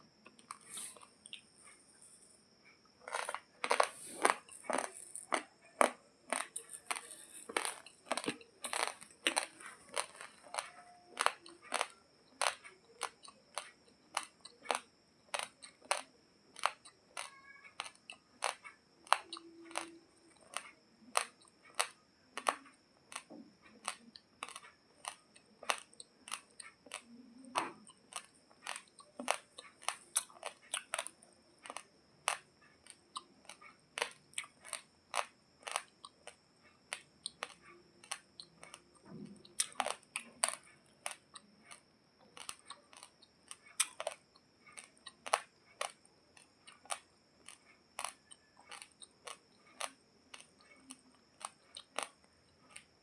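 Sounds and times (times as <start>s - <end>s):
dry rice crunching while chewed: 0.2s - 53.0s.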